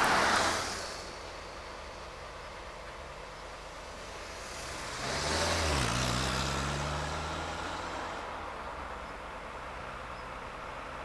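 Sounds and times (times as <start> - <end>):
motor vehicle passing: 0.0 - 1.2, 4.0 - 11.0.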